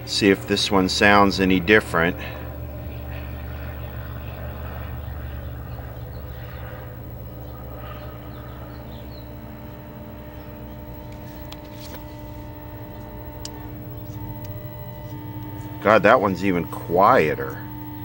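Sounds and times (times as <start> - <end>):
mains hum: 0.0 - 18.0.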